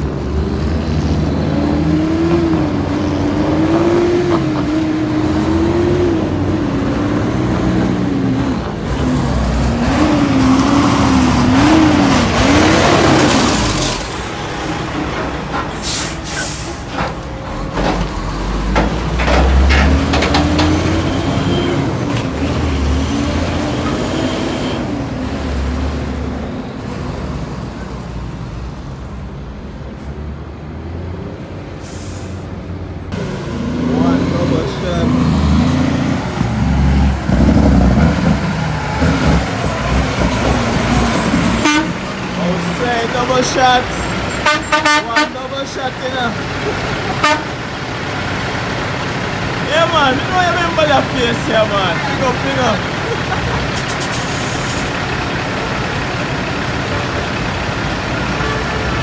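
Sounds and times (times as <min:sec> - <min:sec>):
air brake hiss: 0:15.8 - 0:16.9, 0:31.8 - 0:32.4, 0:53.8 - 0:54.9
diesel truck engine running: 0:31.9 - 0:59.0.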